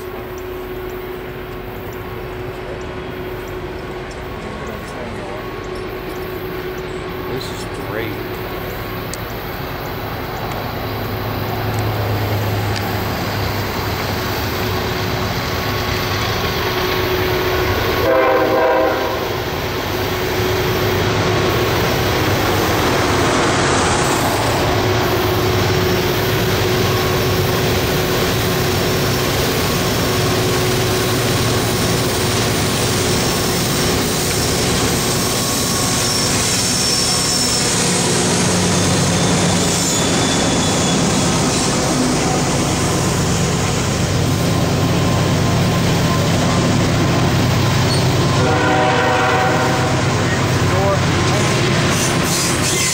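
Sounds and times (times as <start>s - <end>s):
diesel locomotive engines droning: 0.0s - 52.9s
train horn blast: 17.8s - 19.5s, 47.9s - 50.5s.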